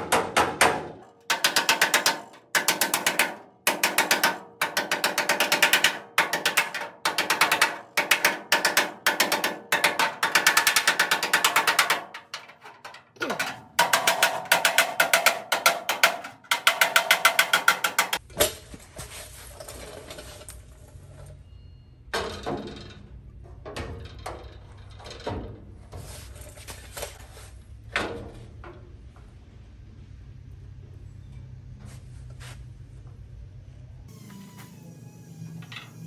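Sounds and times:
metal knocks and scrapes: 0:00.0 - 0:20.6
hand ratchet clicking: 0:01.3 - 0:12.6, 0:13.2 - 0:18.2.

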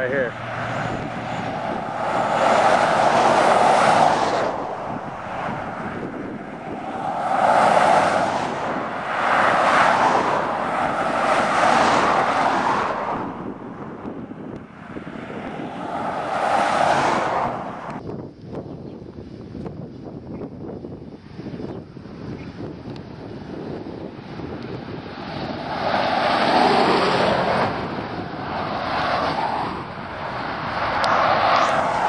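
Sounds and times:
vehicles passing on highway: 0:00.0 - 0:32.0.

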